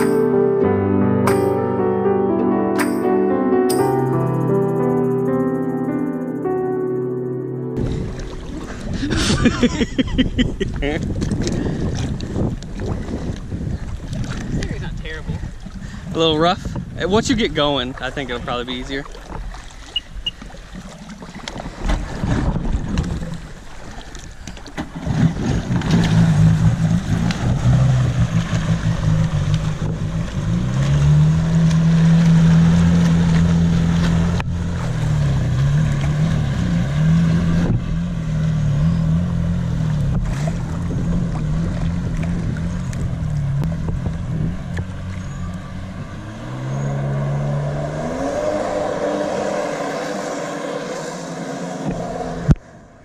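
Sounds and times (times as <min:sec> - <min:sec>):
jet ski engine revving: 0:24.8 - 0:53.0.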